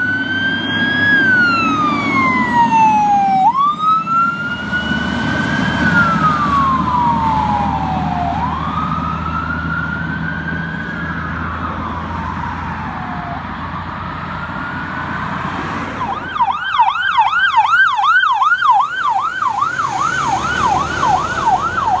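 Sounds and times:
diesel engine rumble: 0.0 - 22.0
fast yelp siren: 0.0 - 22.0
fire truck siren wailing: 0.0 - 22.0.

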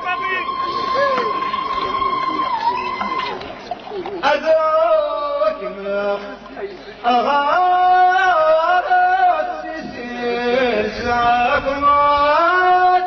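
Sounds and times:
man chanting into a microphone: 4.2 - 13.0.

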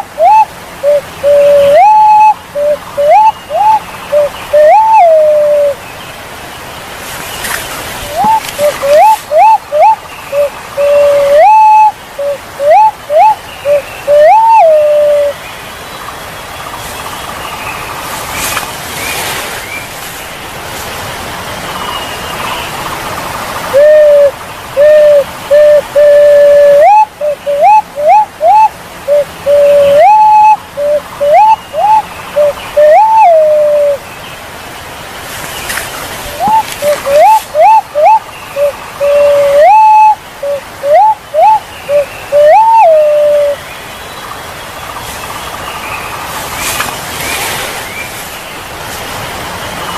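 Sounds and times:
pigeon whistled calls: 0.0 - 5.8, 8.0 - 15.4, 23.7 - 34.0, 36.3 - 43.6
steady rushing noise: 0.0 - 32.4, 43.0 - 49.9.

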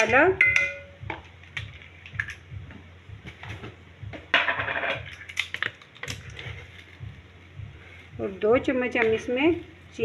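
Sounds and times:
spoon and containers clinking: 0.0 - 1.0.

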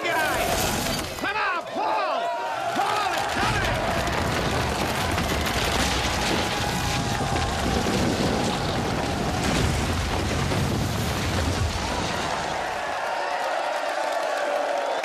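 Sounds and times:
rumble of collapsing stone: 3.2 - 12.9.

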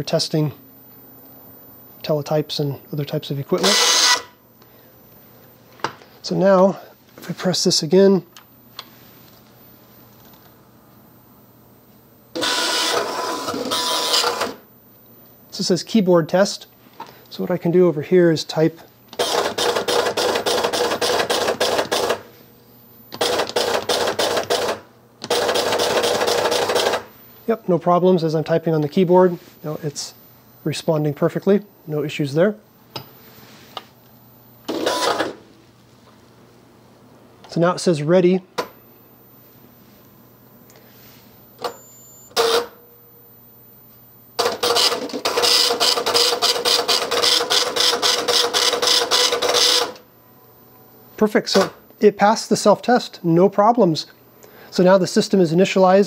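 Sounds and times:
teletype print head clattering: 19.2 - 22.2, 23.2 - 27.0, 44.4 - 50.0.

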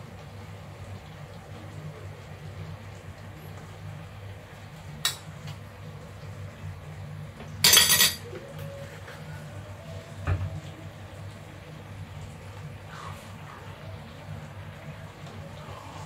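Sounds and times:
kitchen utensils clinking: 7.6 - 8.3.

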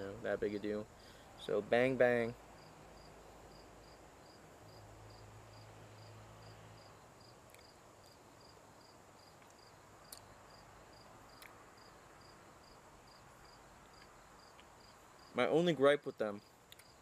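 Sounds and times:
high insect trill: 0.0 - 17.0
cricket chirping: 2.3 - 15.4, 16.4 - 17.0
faint clicks: 16.7 - 17.0.

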